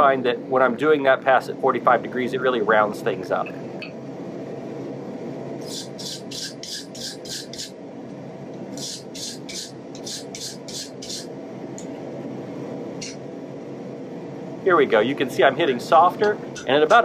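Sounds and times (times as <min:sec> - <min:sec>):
wire brush scrubbing hot steel: 0:05.6 - 0:07.7, 0:08.7 - 0:11.3.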